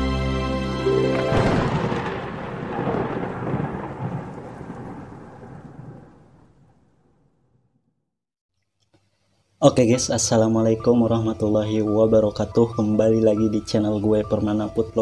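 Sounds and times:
intro music: 0:00.0 - 0:02.4
loud crackling rumble: 0:01.3 - 0:07.4.

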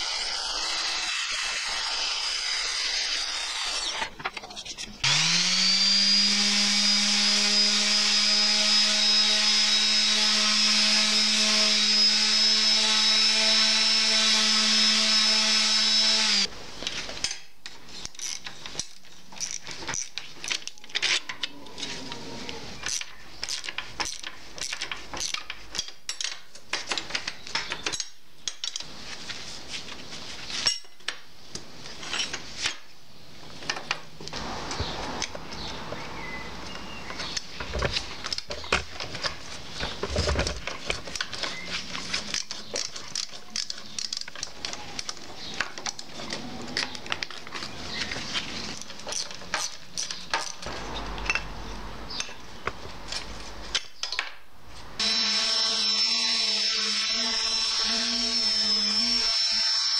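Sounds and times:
electric drill whining: 0:00.0 - 0:04.2, 0:05.0 - 0:16.5, 0:55.0 - 0:59.9.

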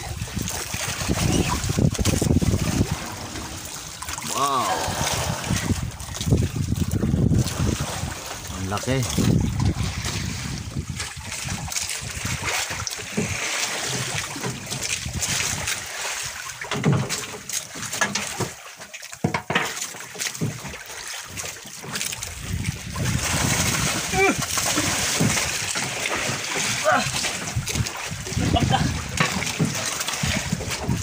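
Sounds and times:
wind buffeting microphone: 0:00.0 - 0:13.4, 0:14.2 - 0:16.4, 0:22.2 - 0:25.8, 0:27.0 - 0:31.0
sea water splashing against boat: 0:00.0 - 0:31.0.

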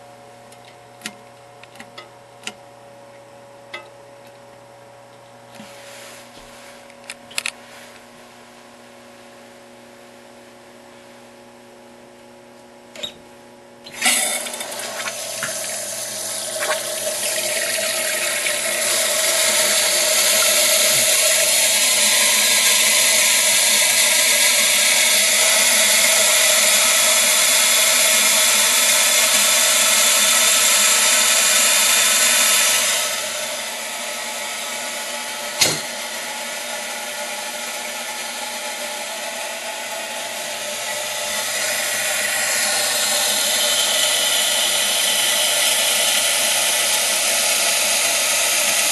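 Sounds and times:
toilet tank filling with water: 0:13.8 - 0:48.9.

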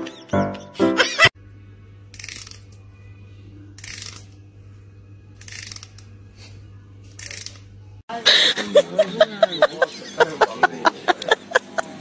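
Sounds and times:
steady low hum: 0:01.3 - 0:12.0
thumbnail zipping along comb teeth: 0:05.4 - 0:06.1, 0:07.2 - 0:07.6.

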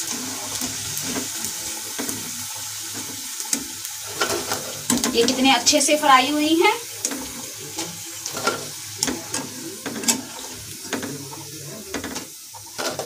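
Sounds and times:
hot oil sizzling: 0:00.0 - 0:13.0.

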